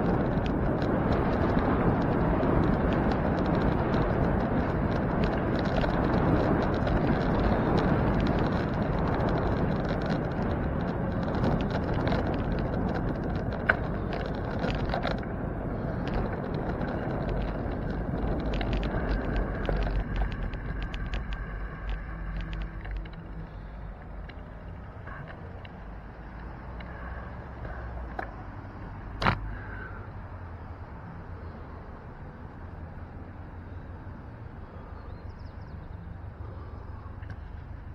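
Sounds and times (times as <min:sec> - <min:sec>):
bicycle ticks and rattles: 0:00.0 - 0:37.9
wind rushing over microphone: 0:00.0 - 0:37.9.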